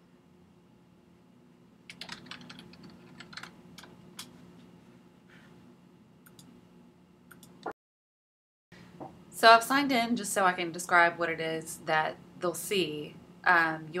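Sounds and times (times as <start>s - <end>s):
low steady hum: 0.0s - 7.7s
computer keyboard typing: 1.9s - 3.9s.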